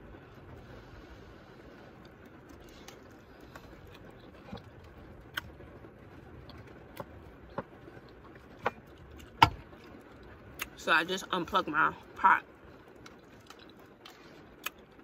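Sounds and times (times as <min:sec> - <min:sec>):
person chewing food: 0:01.8 - 0:05.6, 0:06.3 - 0:10.7, 0:12.8 - 0:15.0.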